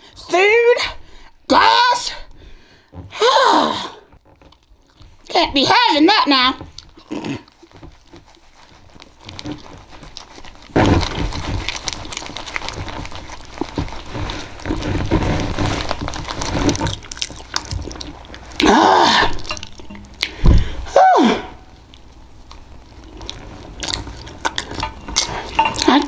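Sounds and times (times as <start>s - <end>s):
wet smacking and chewing: 4.1s - 5.4s, 6.6s - 20.8s, 21.6s - 26.0s
thump: 20.4s - 20.8s.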